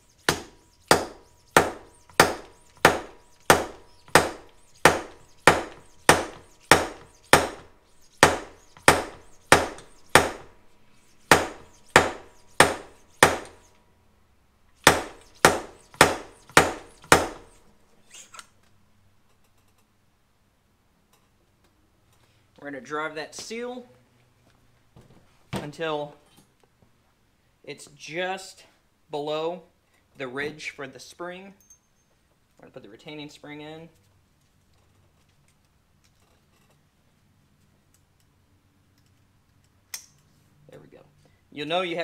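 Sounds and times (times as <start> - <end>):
hammer knocking seal driver: 0.3 - 10.5, 11.3 - 13.6, 14.8 - 17.5.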